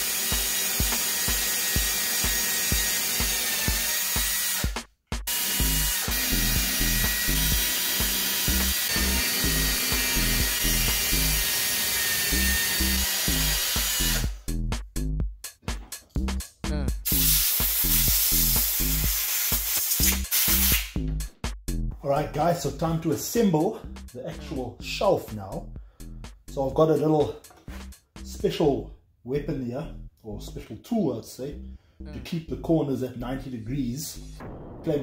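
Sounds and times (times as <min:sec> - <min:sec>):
background music with beat: 0:00.0 - 0:11.4, 0:12.3 - 0:28.7
electric drill motor whine: 0:00.0 - 0:14.4.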